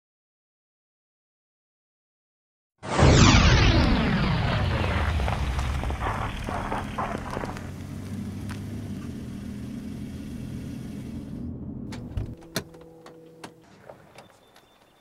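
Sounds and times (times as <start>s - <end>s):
car engine idling: 6.4s - 13.1s.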